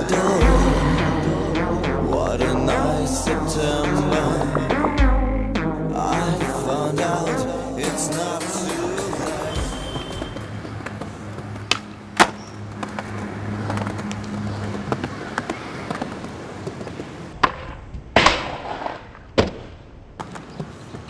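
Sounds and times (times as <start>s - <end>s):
skateboard wheels rolling on concrete: 9.0s - 21.0s
skateboard clacks: 10.2s - 21.0s.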